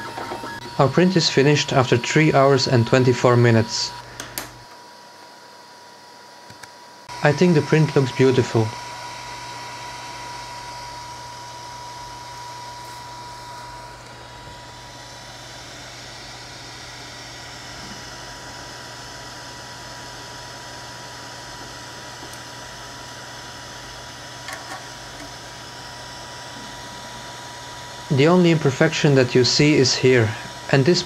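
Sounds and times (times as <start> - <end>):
thin high whine: 0.0 - 4.8, 7.0 - 19.1
cooling fan whirring hiss: 0.0 - 31.0.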